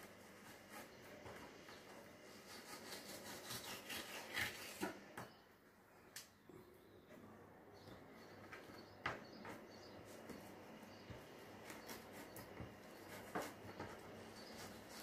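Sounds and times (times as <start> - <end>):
knife scraping cutting board: 2.3 - 5.0.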